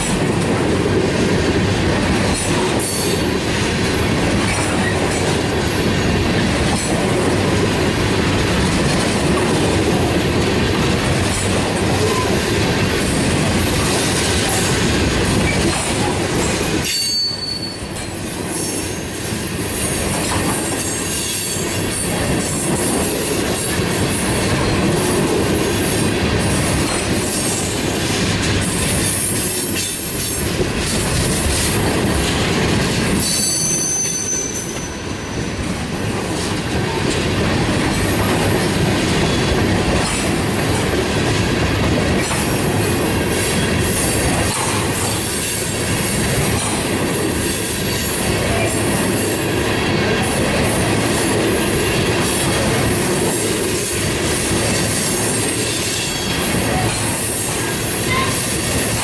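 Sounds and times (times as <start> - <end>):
train wheels rumbling on rails: 0.0 - 59.0
high wheel squeal: 16.8 - 19.2, 19.9 - 22.4, 33.2 - 35.4, 55.0 - 58.9.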